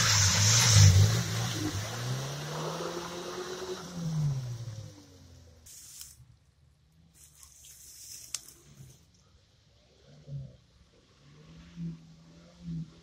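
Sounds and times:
car engine revving: 0.0 - 5.6.

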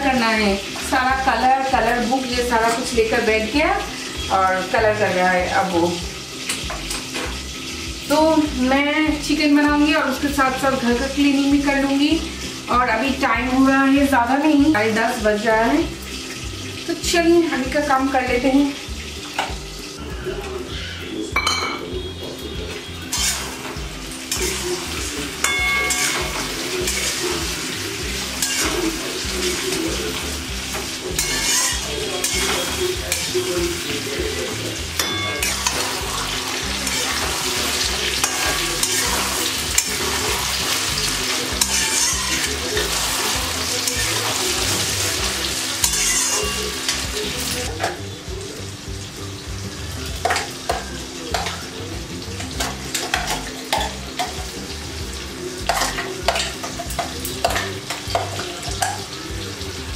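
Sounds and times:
vegetables sizzling in hot oil: 0.0 - 59.9
metal spatula scraping a pan: 22.7 - 47.7.

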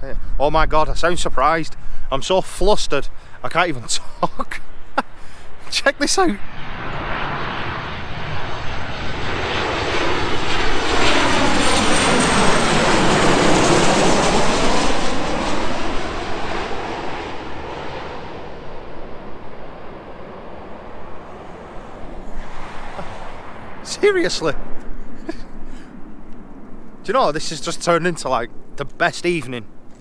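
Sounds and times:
jet airliner passing overhead: 0.0 - 30.0
high engine whine: 4.6 - 30.0.

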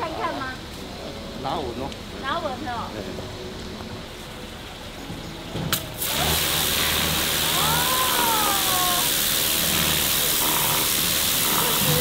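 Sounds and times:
high-pressure water jet hissing: 5.7 - 12.0
pressure washer motor humming: 5.7 - 12.0.

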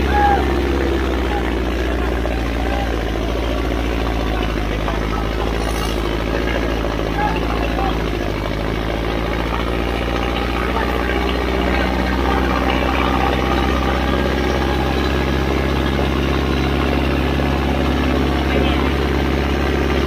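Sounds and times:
tractor diesel engine under load: 0.0 - 20.0.

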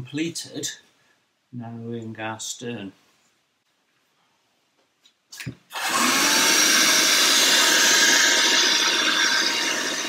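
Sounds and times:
handheld vacuum cleaner running: 5.7 - 10.0.

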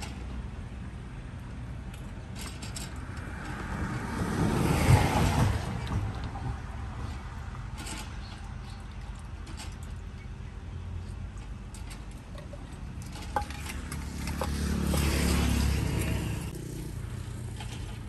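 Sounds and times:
low traffic rumble: 0.0 - 18.0
vehicle passing close by: 3.1 - 6.1, 13.7 - 17.8.

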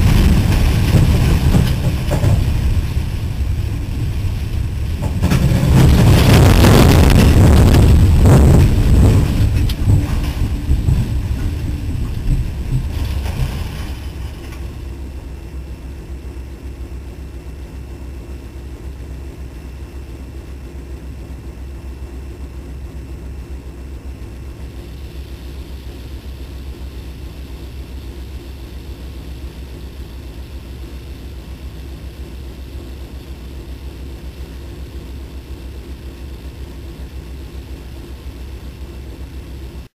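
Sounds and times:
storm wind rushing: 0.0 - 13.4
diesel engine idling: 0.0 - 39.9.

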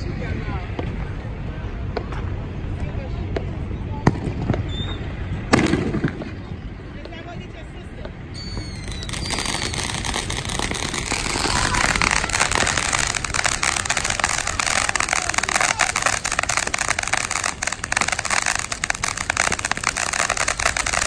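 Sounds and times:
thin high whistle: 4.7 - 5.0, 8.3 - 9.9
firework hissing and crackling: 8.2 - 21.0.

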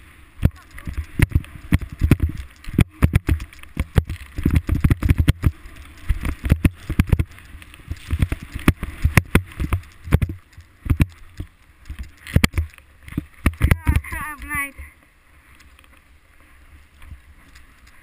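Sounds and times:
wind buffeting microphone: 0.0 - 14.8
skis scraping snow: 0.0 - 18.0
knocks and thumps: 0.4 - 5.6, 8.0 - 11.2.

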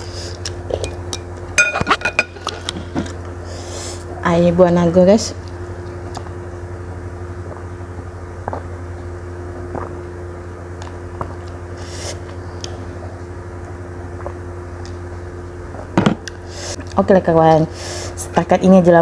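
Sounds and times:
steady low hum: 0.0 - 19.0
person drinking from a cup: 8.4 - 8.7, 9.6 - 10.1
swallowing clicks: 8.4 - 8.7.

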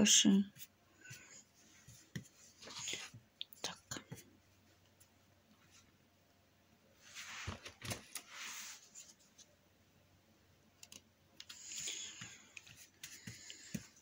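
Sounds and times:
paint brushed on canvas: 8.3 - 9.5
small clicks: 10.8 - 11.6.

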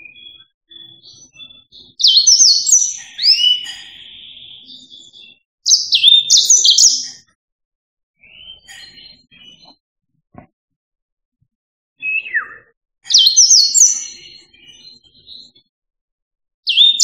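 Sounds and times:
canary singing: 0.0 - 7.3, 8.2 - 9.8, 12.0 - 15.6, 16.7 - 17.0.

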